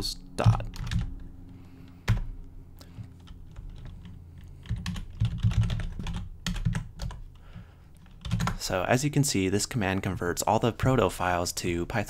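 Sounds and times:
typing on computer keyboard: 0.4s - 1.2s, 3.0s - 7.4s, 8.0s - 8.6s.

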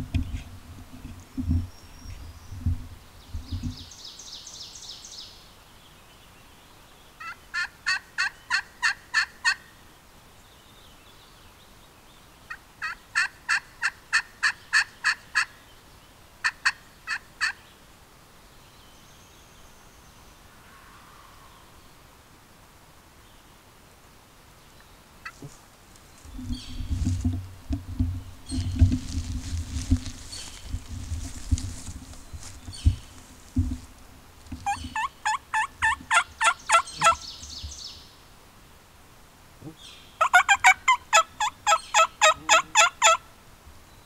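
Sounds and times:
low thumps: 26.2s - 35.0s
distant turkey gobble: 34.6s - 37.2s, 40.2s - 43.2s
turkey yelps: 34.6s - 37.2s, 40.2s - 43.2s.

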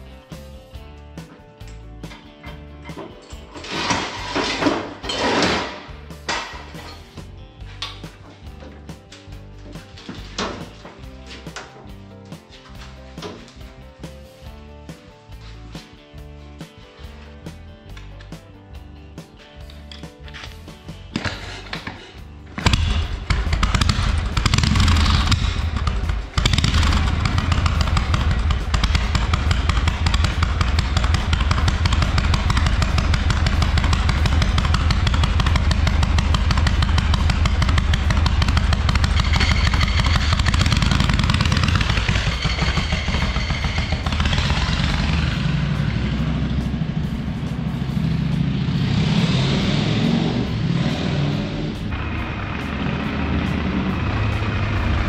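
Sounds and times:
motorcycle engine running: 22.6s - 55.0s.

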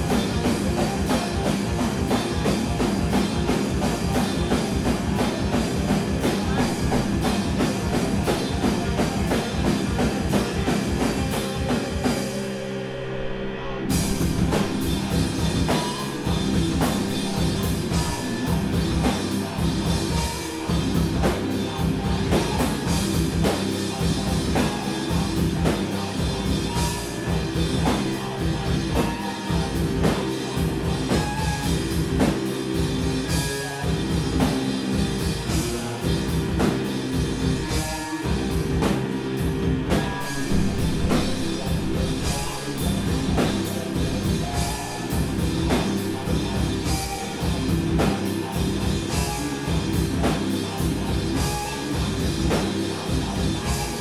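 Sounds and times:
pounding drum kit: 0.0s - 13.0s, 13.8s - 54.0s
distorted electric guitar: 0.0s - 54.0s.

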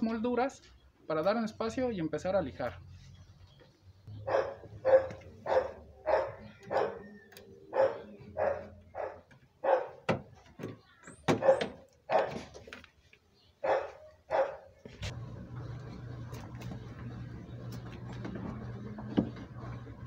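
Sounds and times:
dog barking: 4.2s - 7.1s, 7.7s - 10.1s, 11.3s - 12.5s, 13.6s - 14.8s.

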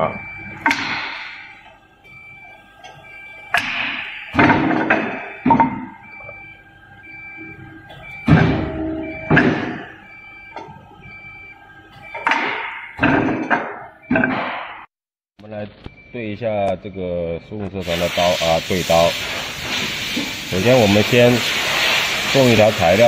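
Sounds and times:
electronic beeps: 0.0s - 13.0s.

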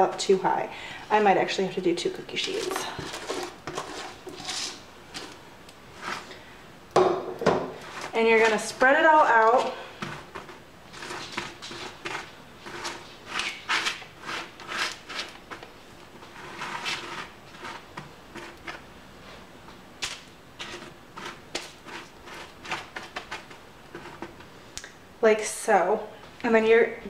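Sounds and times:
spatula scraping baking sheet: 2.1s - 6.4s, 7.8s - 19.4s, 20.6s - 24.5s.

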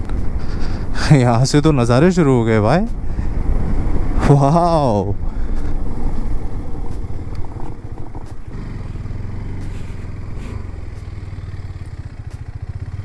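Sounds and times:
road and wind noise: 0.0s - 13.0s
motorcycle engine: 5.2s - 13.0s.

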